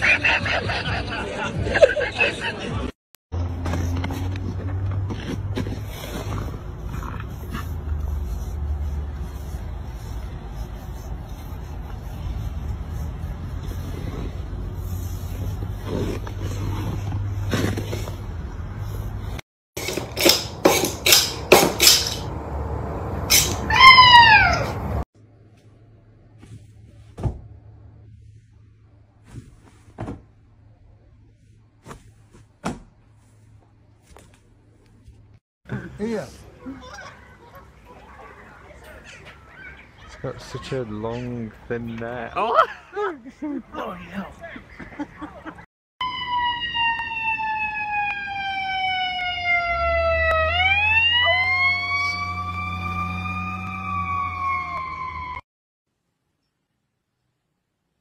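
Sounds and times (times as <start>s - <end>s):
dog howling: 23.7s - 24.8s
siren wailing: 23.7s - 24.8s, 46.0s - 55.4s
soft knocks and thumps: 29.3s - 30.4s.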